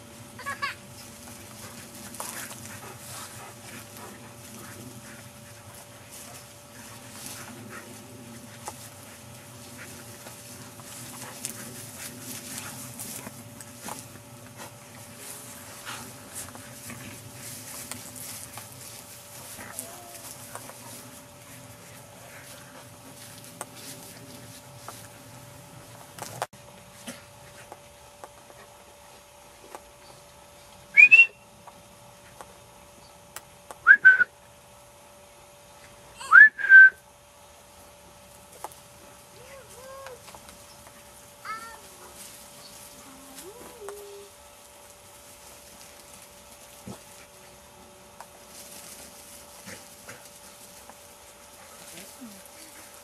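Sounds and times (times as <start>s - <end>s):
dogs playing: 0.0s - 30.8s, 37.6s - 53.0s
rustles in grass: 0.0s - 31.0s, 37.4s - 53.0s
person whistling: 31.0s - 31.4s, 33.8s - 34.3s, 36.2s - 37.0s.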